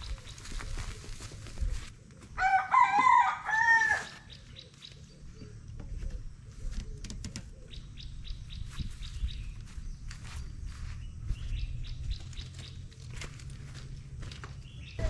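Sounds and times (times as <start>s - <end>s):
small birds chirping: 0.0s - 1.8s, 4.1s - 15.0s.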